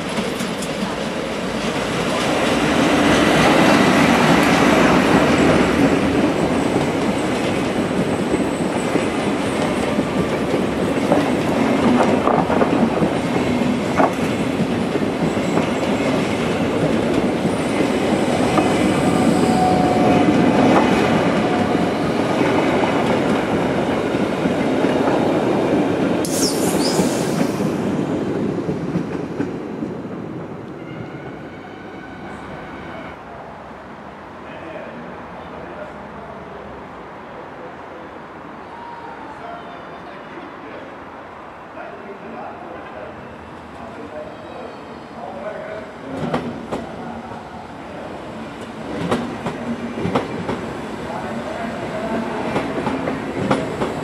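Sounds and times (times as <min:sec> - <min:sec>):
train wheels rumbling on rail: 0:00.0 - 0:32.5, 0:45.4 - 0:54.0.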